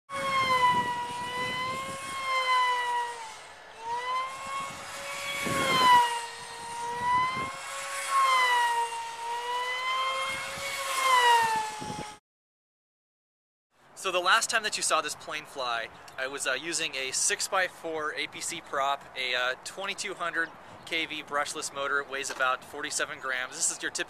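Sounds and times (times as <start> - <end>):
electric model plane motor whining: 0.1 - 12.2.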